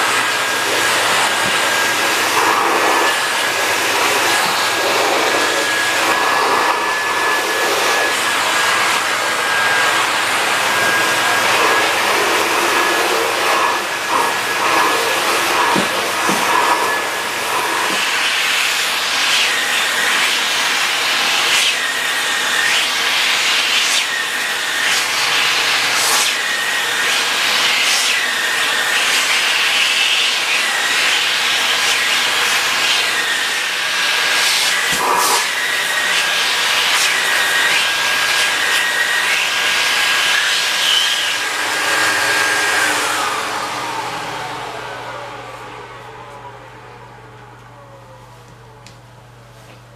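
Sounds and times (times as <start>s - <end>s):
vacuum cleaner running: 0.0s - 49.9s
vacuum motor running down: 41.4s - 49.2s.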